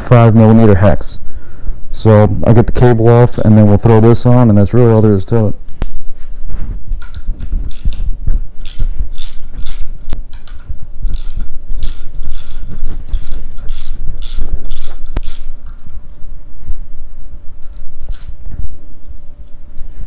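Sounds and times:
ratcheting driver clicking: 8.6 - 15.5.

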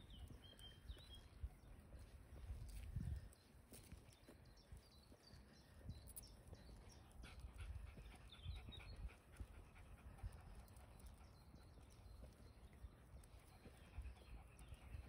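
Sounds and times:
dog panting: 6.5 - 15.0.

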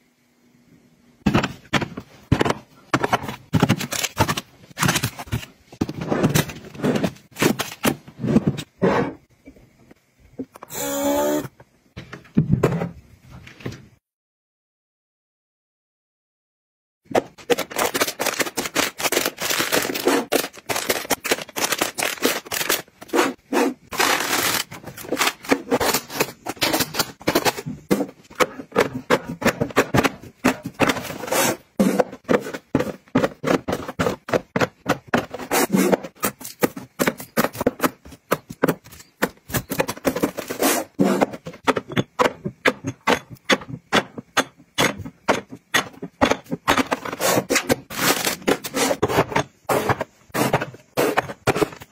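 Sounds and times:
plastic scraping: 17.2 - 43.8, 45.0 - 51.9.

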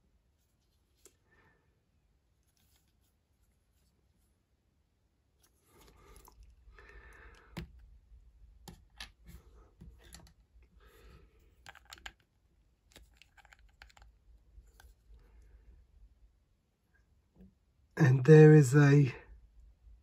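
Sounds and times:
plastic pieces clicking: 11.6 - 12.3, 12.9 - 14.1.

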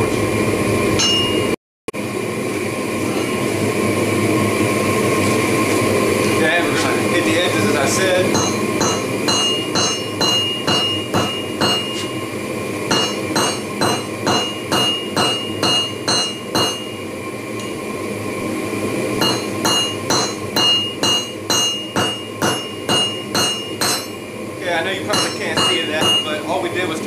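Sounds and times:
hammer striking hot steel on anvil: 1.0 - 1.6, 3.0 - 3.5, 8.1 - 12.2, 12.9 - 17.0, 17.6 - 17.8, 19.2 - 24.3, 25.0 - 26.5.

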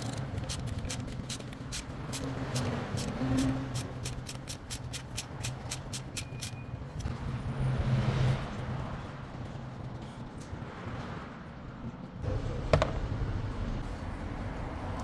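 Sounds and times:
socket ratchet clicking: 0.0 - 6.6.

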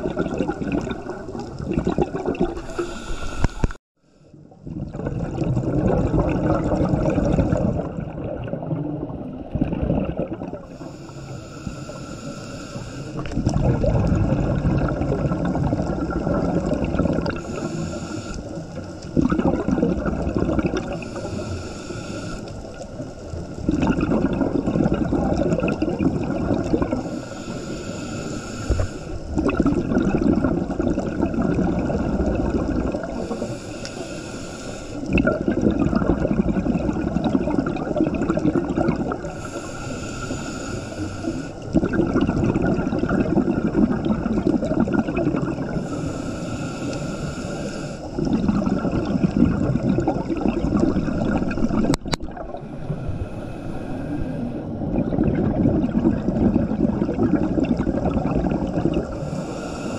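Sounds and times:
water bubbling and gurgling: 0.0 - 59.9
hiss: 10.8 - 13.2, 17.4 - 18.6, 21.0 - 22.8, 27.1 - 29.2, 33.2 - 35.1, 39.4 - 41.6, 45.8 - 48.1, 59.2 - 59.9.

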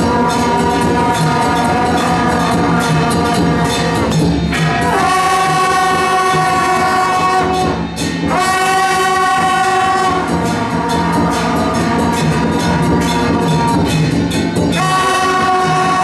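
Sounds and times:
horns playing long notes: 0.0 - 14.0, 14.7 - 16.0
low pulsing drum beat: 0.0 - 16.0.

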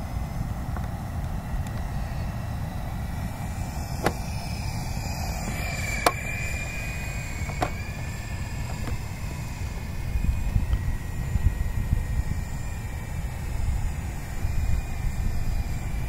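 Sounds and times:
low rumble: 0.0 - 12.7
toy helicopter rotor whine: 0.0 - 16.0.

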